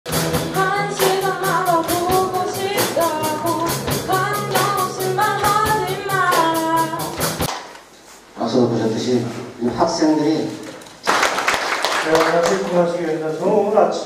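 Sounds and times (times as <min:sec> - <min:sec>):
rock band playing: 0:00.0 - 0:07.5
woman singing into microphone: 0:00.4 - 0:07.4.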